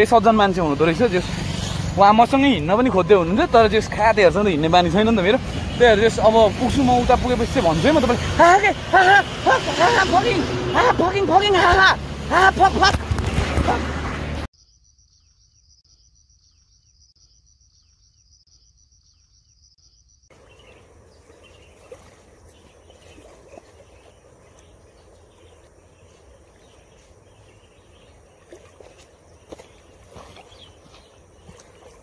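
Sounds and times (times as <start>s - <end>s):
insects chirring: 14.5s - 32.0s.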